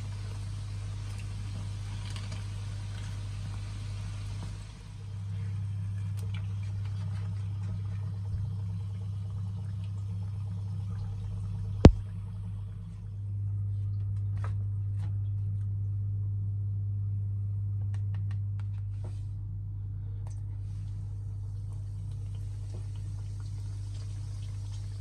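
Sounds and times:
donuts sizzling in oil: 0:00.0 - 0:04.8
steady low hum: 0:00.0 - 0:25.0.

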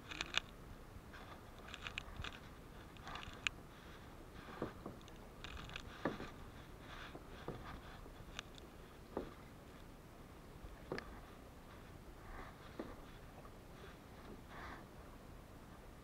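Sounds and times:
kayak paddle strokes: 0:01.1 - 0:09.6.

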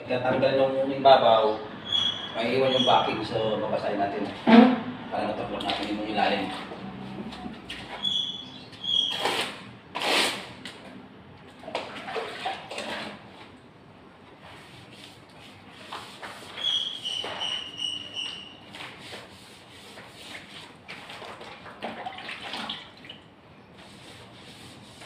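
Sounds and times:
wet rubbing on wall: 0:14.4 - 0:21.8, 0:23.8 - 0:25.0.

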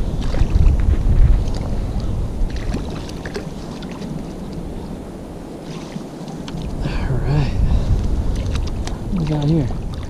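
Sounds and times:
wind rumbling on microphone: 0:00.0 - 0:10.0
river water flowing: 0:01.4 - 0:10.0
small splashes: 0:05.6 - 0:06.7.

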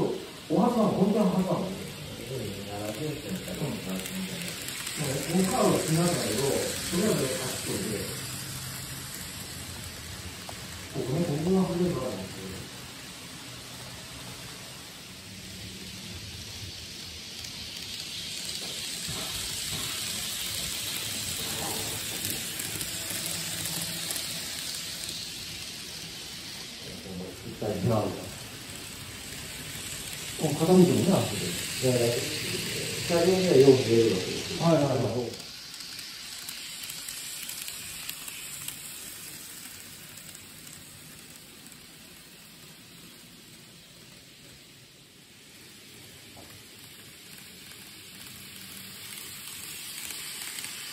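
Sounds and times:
model train rattling on track: 0:00.0 - 0:50.9.

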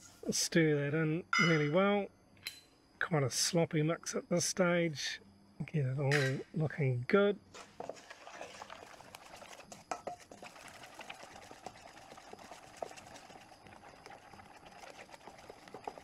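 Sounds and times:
spoon stirring batter in bowl: 0:07.6 - 0:16.0.

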